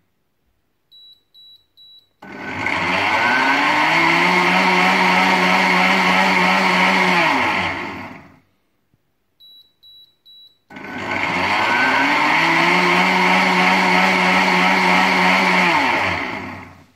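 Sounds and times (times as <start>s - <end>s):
blender motor running: 2.2s - 8.4s, 10.7s - 16.8s
short high beeps: 9.4s - 10.7s.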